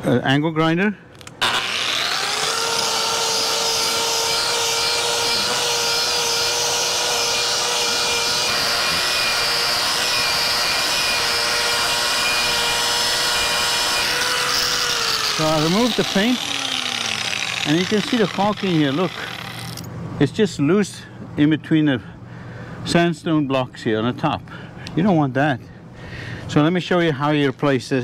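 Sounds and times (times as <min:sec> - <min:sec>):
angle grinder wire brush whine: 0:01.4 - 0:19.9.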